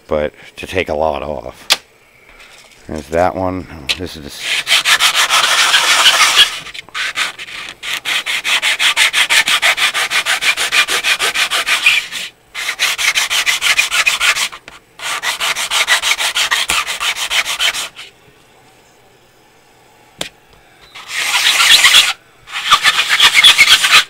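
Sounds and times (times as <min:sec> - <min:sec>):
plastic part rasping on sandpaper: 0:04.4 - 0:18.1, 0:21.0 - 0:24.0.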